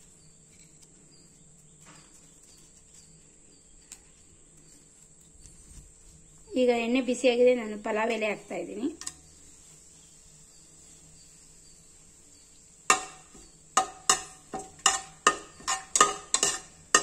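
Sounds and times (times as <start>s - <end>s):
metal spatula scraping a pot: 12.9s - 17.0s.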